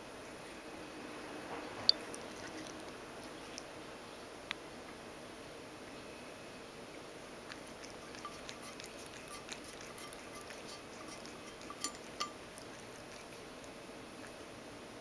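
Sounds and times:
cat lapping water: 0:01.9 - 0:03.7, 0:07.4 - 0:14.4.

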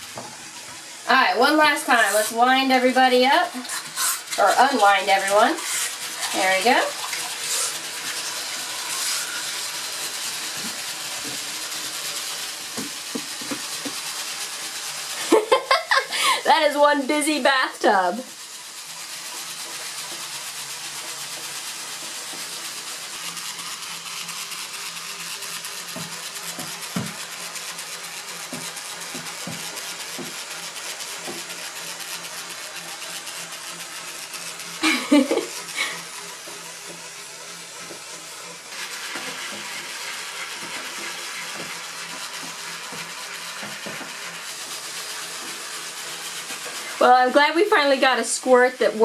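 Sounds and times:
toy motors whirring: 0:00.0 - 0:49.0
water churning: 0:01.2 - 0:13.9.

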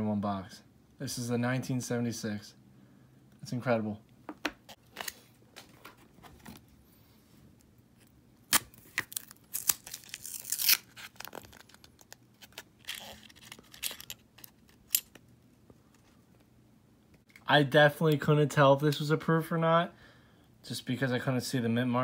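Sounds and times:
paper wrapper tearing and crinkling: 0:08.5 - 0:14.7.

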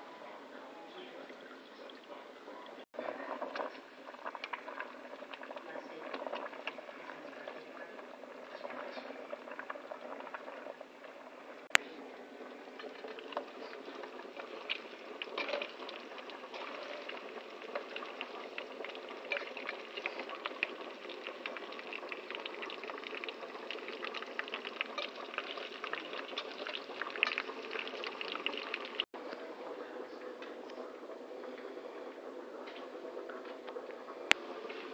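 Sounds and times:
water boiling in a pot: 0:00.0 - 0:34.9
chicken skin sizzling in oil: 0:12.6 - 0:29.1.

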